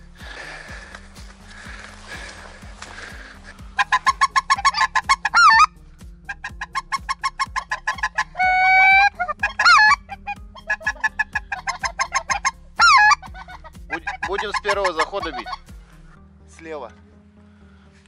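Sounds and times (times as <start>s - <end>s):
goose calls: 1.5s - 15.8s.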